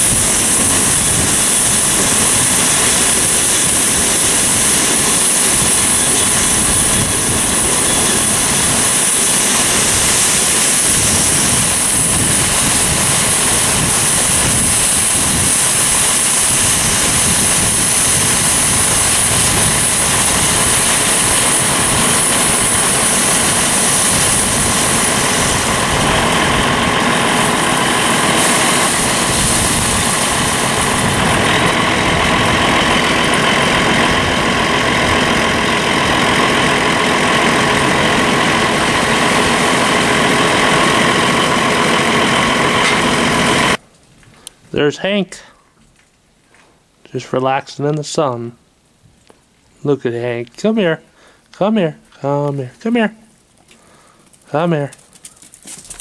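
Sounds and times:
tractor engine running: 0:00.0 - 0:44.8, 0:51.4 - 0:56.0
steady high whine: 0:00.0 - 0:45.5.

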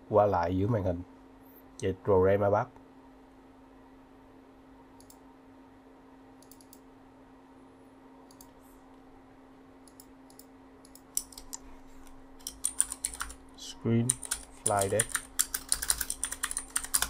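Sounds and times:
steady low hum: 0:00.0 - 0:17.0
computer mouse clicking: 0:06.4 - 0:06.8, 0:08.3 - 0:08.6, 0:09.8 - 0:13.4
keyboard key presses: 0:12.4 - 0:13.4, 0:14.1 - 0:17.0.

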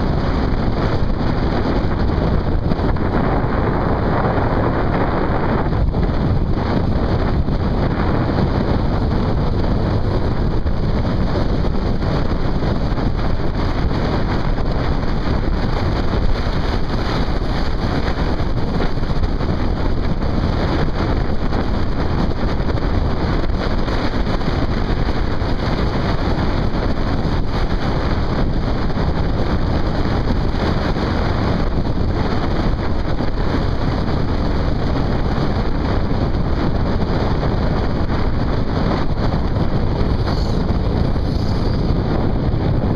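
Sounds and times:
motorcycle running: 0:00.0 - 0:42.9
wind buffeting microphone: 0:00.0 - 0:42.9.

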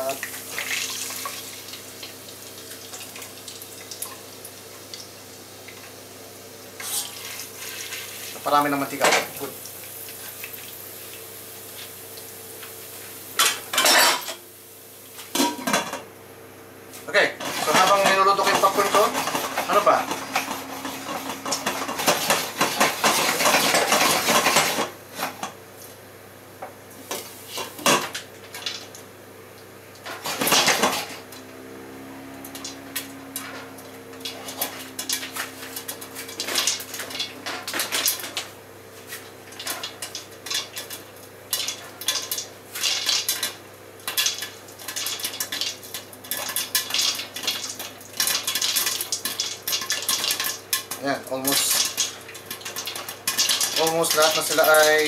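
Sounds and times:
popcorn popping in a pot: 0:17.2 - 0:25.0, 0:30.0 - 0:31.4, 0:39.3 - 0:55.0
pot rattling on burner: 0:17.4 - 0:24.9, 0:39.5 - 0:55.0.

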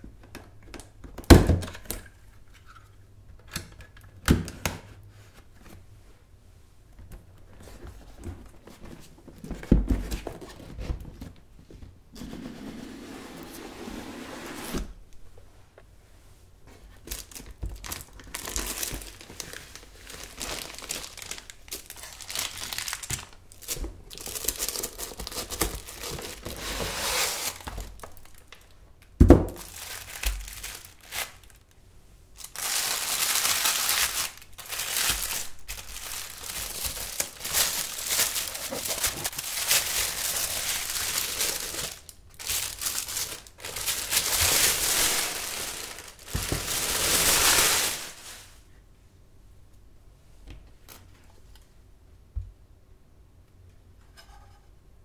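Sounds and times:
wrapping crinkling and rustling: 0:16.7 - 0:28.8, 0:29.5 - 0:31.8, 0:32.4 - 0:48.7.

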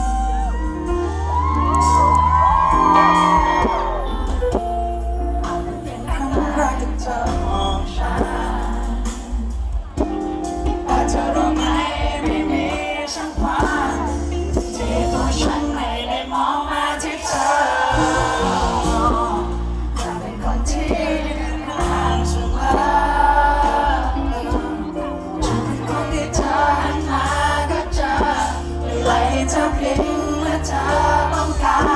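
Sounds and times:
pop band playing live: 0:00.0 - 0:31.9
man singing into a microphone: 0:05.3 - 0:09.4, 0:10.9 - 0:31.9.

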